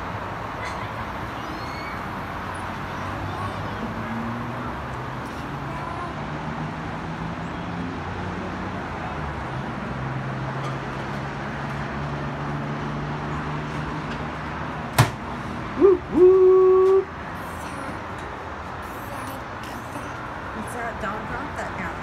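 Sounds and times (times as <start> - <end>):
background traffic noise: 0.0 - 22.0
sharp knock: 15.0 - 15.2.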